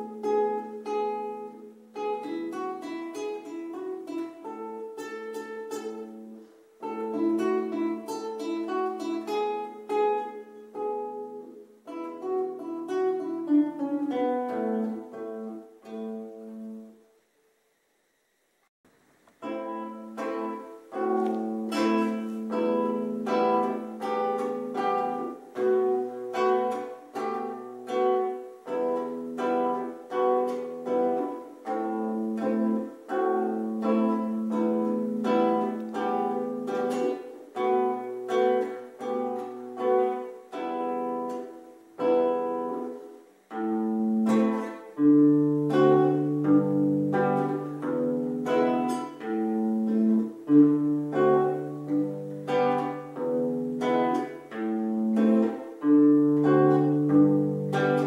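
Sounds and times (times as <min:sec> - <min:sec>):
classical guitar playing: 0:00.0 - 0:17.6, 0:18.9 - 0:58.0.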